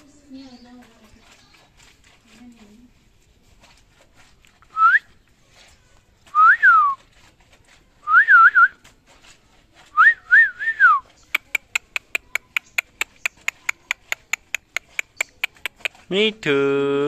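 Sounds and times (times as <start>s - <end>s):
person whistling: 4.7s - 5.1s, 6.4s - 7.0s, 8.0s - 8.8s, 10.0s - 11.0s.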